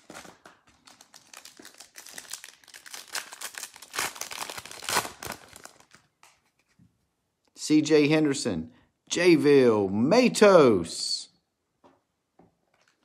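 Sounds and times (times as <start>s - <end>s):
foil wrapper crinkling and tearing: 0.0s - 6.1s.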